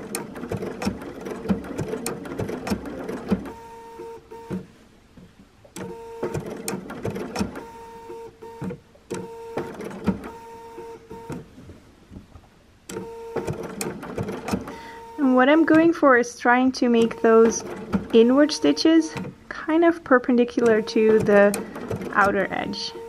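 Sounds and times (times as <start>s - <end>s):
sewing machine motor hum: 0.0s - 4.7s, 5.8s - 11.5s, 12.9s - 23.0s
sewing needle clicking: 16.9s - 19.4s, 20.5s - 23.0s.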